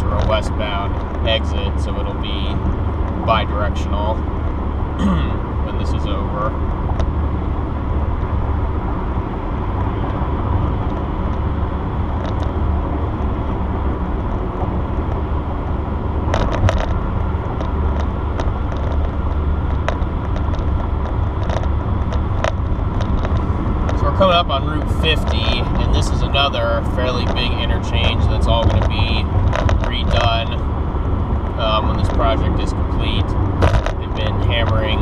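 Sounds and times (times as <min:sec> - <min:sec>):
car road noise rumble: 0:00.0 - 0:35.0.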